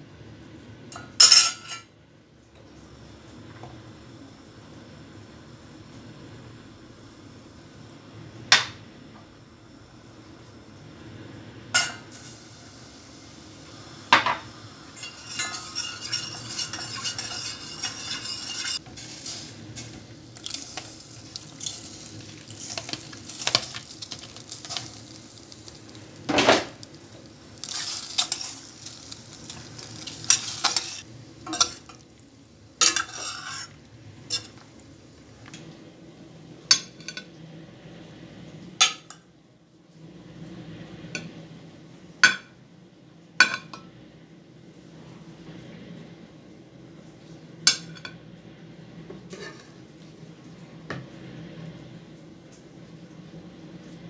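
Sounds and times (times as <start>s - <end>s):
sizzling: 0.0s - 54.0s
metal spoon scraping a pot: 15.0s - 18.8s, 32.8s - 34.6s, 49.3s - 49.8s.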